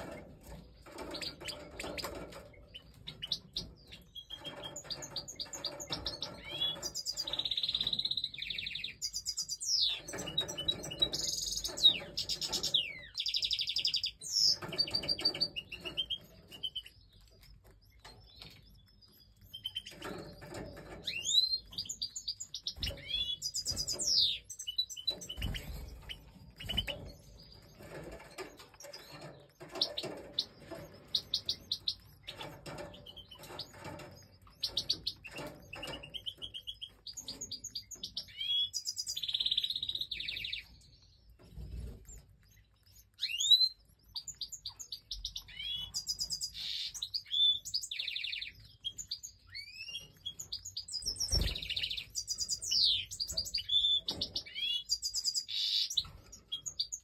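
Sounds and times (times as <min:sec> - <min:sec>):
birds chirping: 0:00.0 - 0:57.0
rapid scratchy bird chatter: 0:00.0 - 0:57.0.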